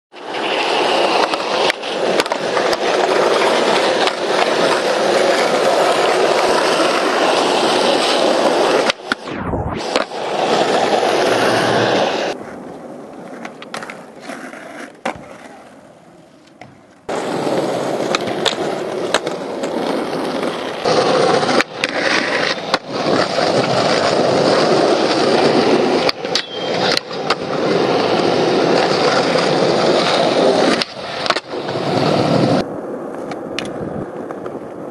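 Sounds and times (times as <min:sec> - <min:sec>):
skateboard wheels rolling on asphalt: 0:00.1 - 0:34.9
skateboard clacks and knocks: 0:00.3 - 0:07.6, 0:13.2 - 0:27.6, 0:32.6 - 0:34.9.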